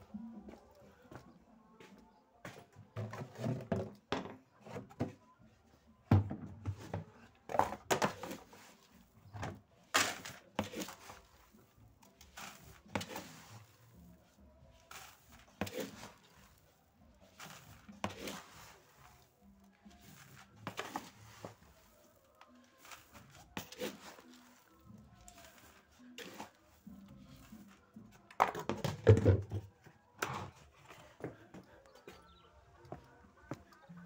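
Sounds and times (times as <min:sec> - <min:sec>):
knocks and thumps of handling: 0:28.3 - 0:30.5.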